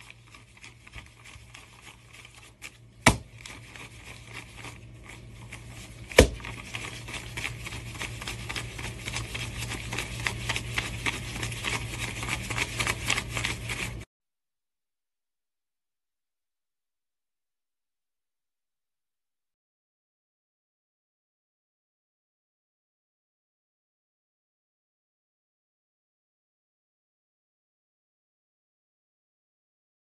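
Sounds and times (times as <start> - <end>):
banknotes flicking and rustling: 0.0 - 14.1
sharp paper snaps: 0.5 - 4.7, 6.0 - 13.9.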